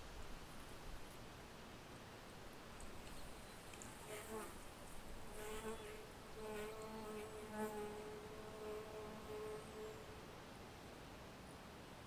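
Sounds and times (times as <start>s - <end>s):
flying insect buzzing: 5.3s - 10.0s.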